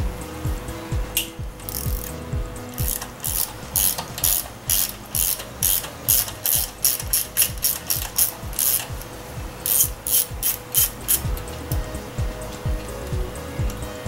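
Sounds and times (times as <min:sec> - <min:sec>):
hand ratchet clicking: 0:01.2 - 0:12.0.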